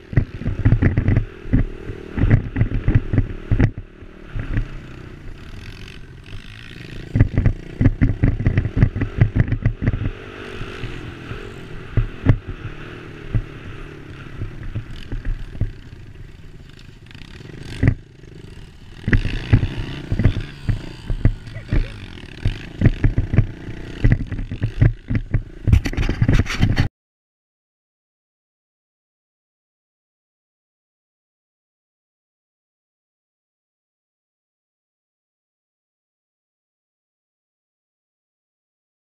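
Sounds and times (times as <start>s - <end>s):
bike rattling over bumps: 0.0s - 26.9s
dirt bike engine running: 0.0s - 26.9s.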